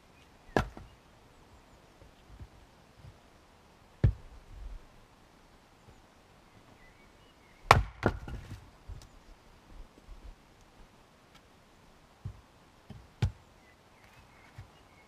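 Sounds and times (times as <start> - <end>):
axe chopping firewood: 0.5 - 0.9, 4.0 - 4.2, 7.7 - 8.6, 12.2 - 13.4.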